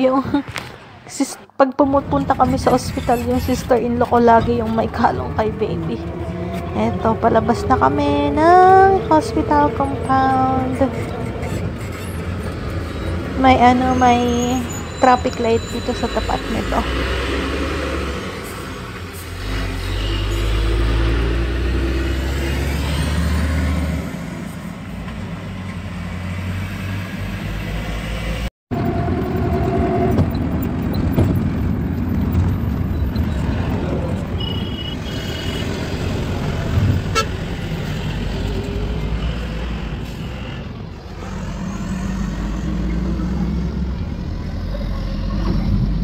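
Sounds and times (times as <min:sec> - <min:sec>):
car road and engine noise: 0:00.0 - 0:46.0
car horn toots: 0:34.4 - 0:35.8, 0:37.1 - 0:37.4.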